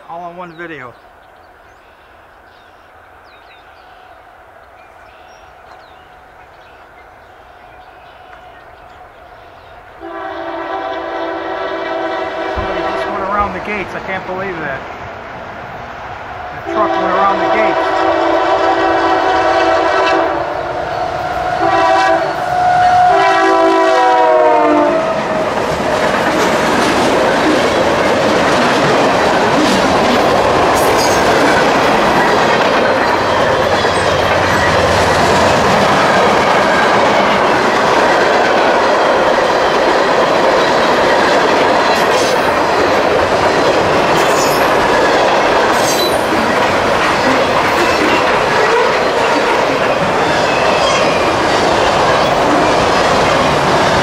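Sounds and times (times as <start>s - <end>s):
locomotive horn: 10.0s - 13.5s, 16.6s - 25.5s
freight cars wheels on rails: 25.1s - 54.0s.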